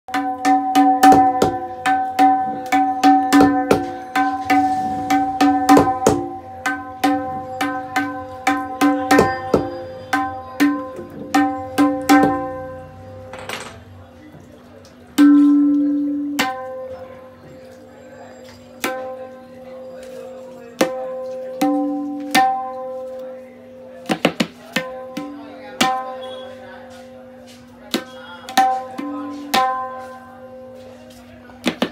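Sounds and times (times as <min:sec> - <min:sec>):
small hammer tapping drum: 0:00.1 - 0:04.6, 0:05.4 - 0:13.7
tabla drum strokes ringing: 0:00.1 - 0:31.9.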